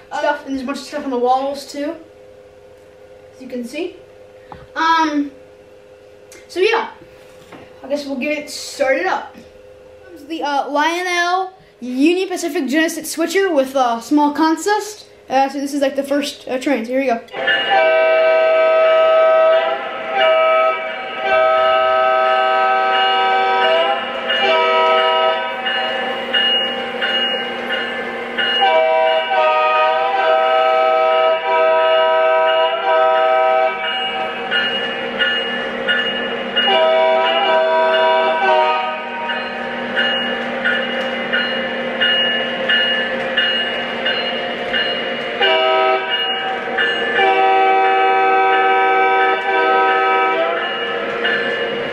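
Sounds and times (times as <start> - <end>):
locomotive bell ringing: 0.0 - 7.0, 14.6 - 51.9
toy train diesel horn: 17.3 - 34.6, 36.6 - 39.6, 45.4 - 51.6.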